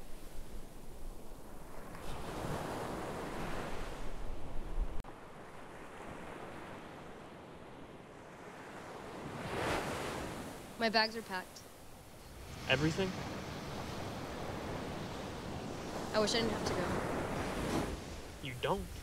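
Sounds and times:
surf washing onto beach: 0:08.0 - 0:10.8, 0:12.2 - 0:19.0.

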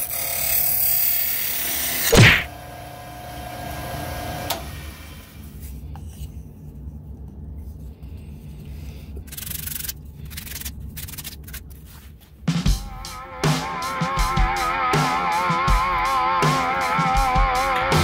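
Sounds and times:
low steady rumble: 0:05.4 - 0:11.0
hands rubbing wooden parts: 0:05.4 - 0:12.4.

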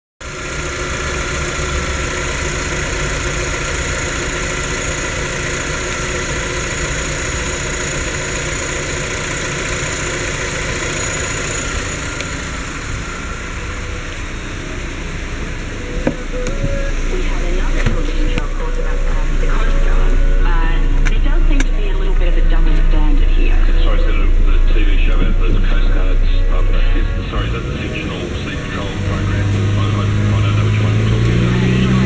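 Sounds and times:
car engine idling: 0:00.2 - 0:32.0.

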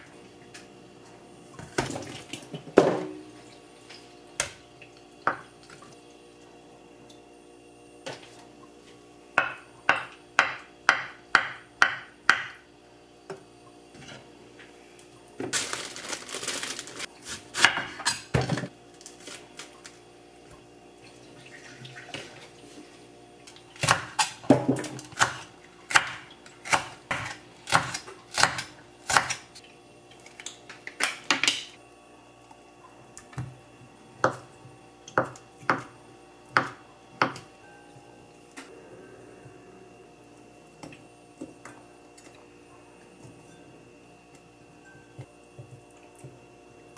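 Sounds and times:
knife chopping on wooden board: 0:09.4 - 0:12.6, 0:23.8 - 0:29.4, 0:35.2 - 0:35.9.

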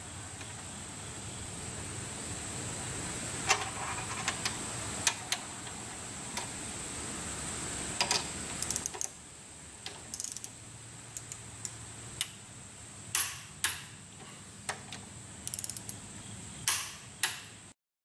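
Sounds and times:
torque wrench ratchet clicking: 0:08.0 - 0:09.2, 0:10.1 - 0:10.6, 0:11.2 - 0:12.3, 0:15.4 - 0:16.0.

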